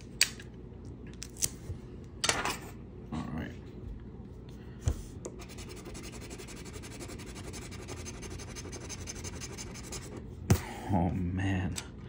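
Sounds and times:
scratch card being scraped: 5.4 - 10.2.

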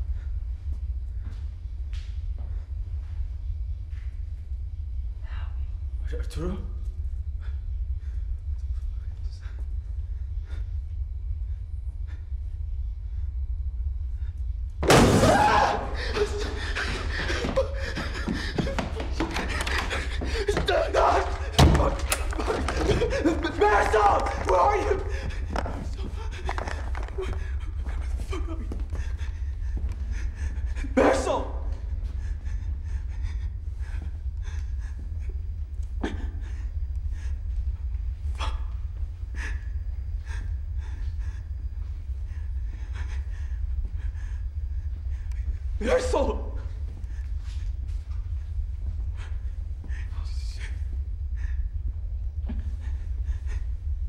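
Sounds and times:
low steady rumble: 0.0 - 54.0
loud crash: 14.8 - 16.2
person breathing heavily: 15.8 - 54.0.

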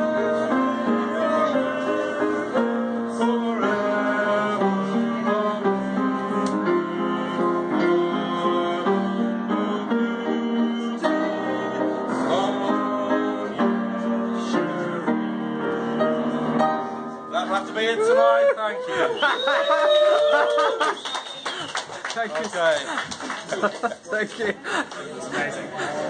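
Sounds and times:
upright piano playing: 0.0 - 18.3.

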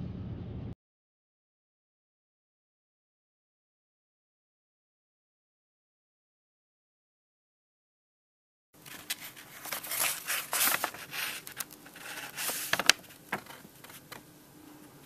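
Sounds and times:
rustling against microphone: 8.8 - 14.2.

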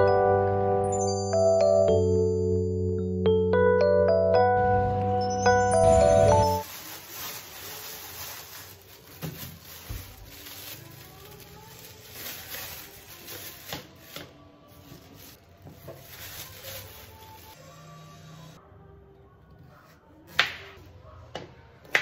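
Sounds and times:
plastic bags rustling: 5.8 - 17.7.

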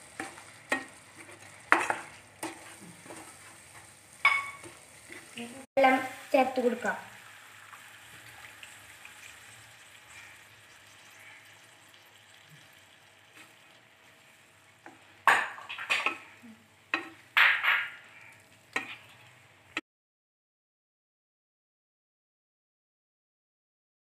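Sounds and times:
spatula scraping pan: 0.0 - 5.6, 18.7 - 19.3
low sizzle: 0.0 - 19.8.

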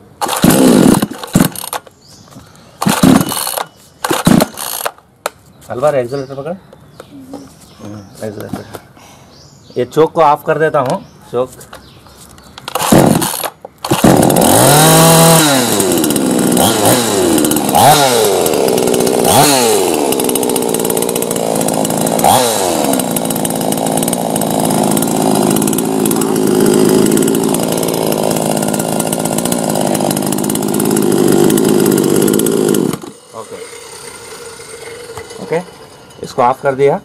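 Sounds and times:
chainsaw engine revving: 0.2 - 1.9, 2.8 - 5.0, 12.7 - 36.4.

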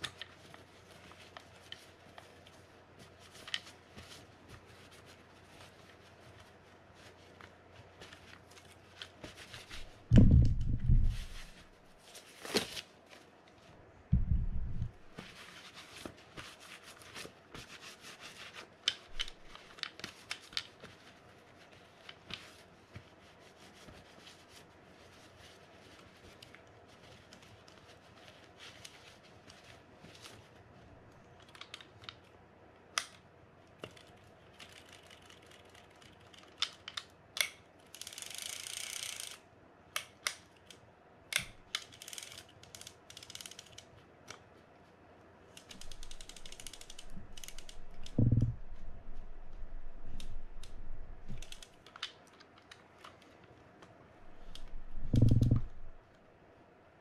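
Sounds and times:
clicks of small metal parts: 36.3 - 39.4.

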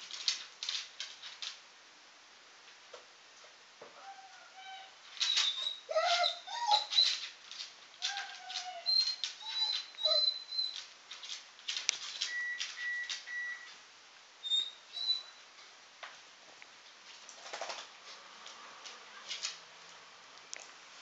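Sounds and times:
claws clicking on wooden floor: 0.0 - 1.6, 5.2 - 13.2
dog whining and whimpering: 4.0 - 7.3, 8.0 - 10.8, 14.4 - 15.4.

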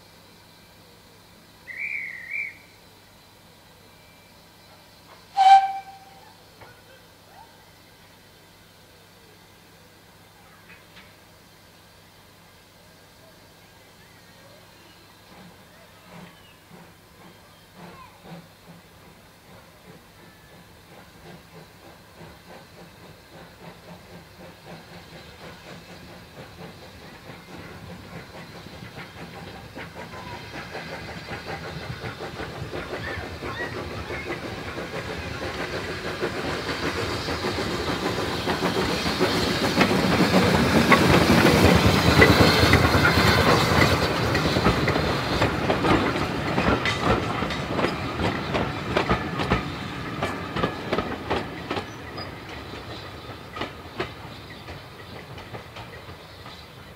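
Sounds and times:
steam hissing: 0.0 - 56.9
steam locomotive chuffing: 0.0 - 56.9
wheels clattering over rail joints: 27.3 - 56.6.

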